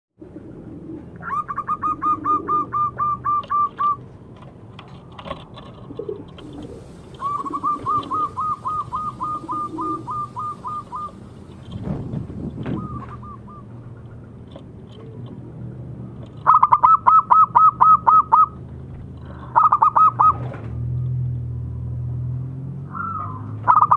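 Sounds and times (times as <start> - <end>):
dove cooing rapidly: 0.2 - 4.0, 5.8 - 11.6, 12.6 - 14.1, 16.4 - 18.6, 19.4 - 20.4, 23.0 - 23.9
soft low dove coos: 0.2 - 4.0, 5.9 - 11.2.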